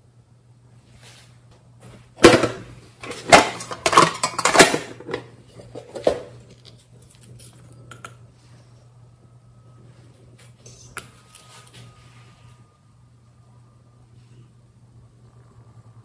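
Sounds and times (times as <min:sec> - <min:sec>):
metal tin clacking and clinking: 0:02.3 - 0:06.3.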